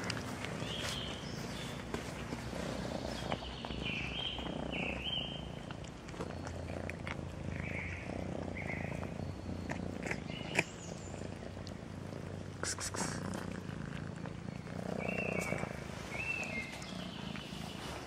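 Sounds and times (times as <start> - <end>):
cats purring: 0.0 - 18.0
small crunching clicks: 5.4 - 8.0.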